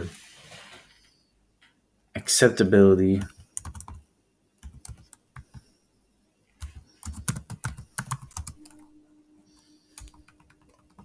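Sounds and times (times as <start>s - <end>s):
faint steady hum: 0.0s - 11.0s
computer keyboard typing: 3.2s - 4.0s, 4.6s - 5.7s, 6.6s - 8.9s, 9.9s - 11.0s.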